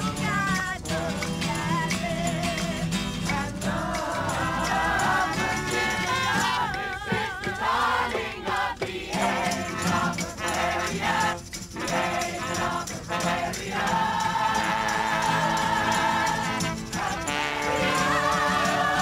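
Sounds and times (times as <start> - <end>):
acoustic guitar strumming: 0.0 - 19.0
group of people singing: 0.0 - 19.0.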